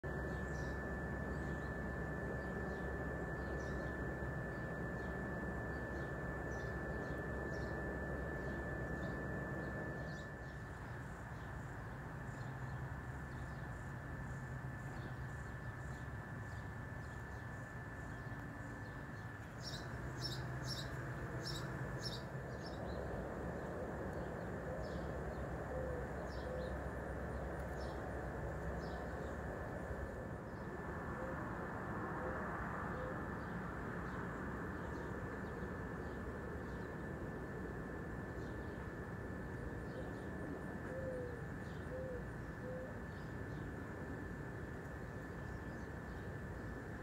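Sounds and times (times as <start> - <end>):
steady low rumble: 0.0 - 40.8
thin steady high tone: 0.0 - 47.0
bird chirps: 0.1 - 11.7, 14.8 - 28.0.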